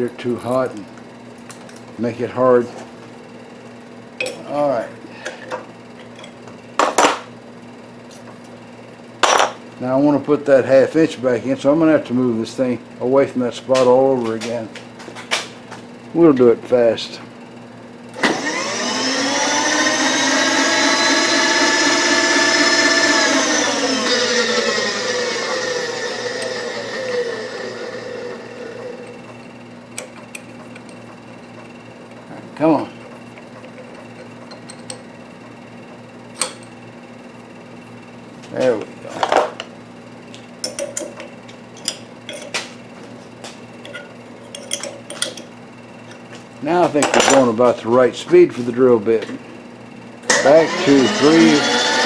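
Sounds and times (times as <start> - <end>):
milling machine motor whining: 18.1 - 38.0, 49.9 - 52.0.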